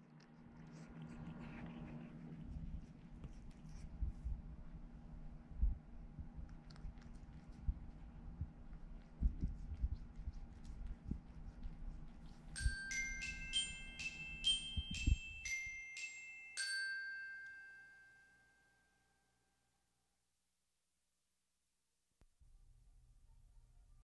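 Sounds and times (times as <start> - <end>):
cat licking a hand: 0.0 - 4.6, 6.4 - 12.5
close low rumbles: 0.4 - 12.2
glockenspiel-like chime melody: 12.6 - 19.4.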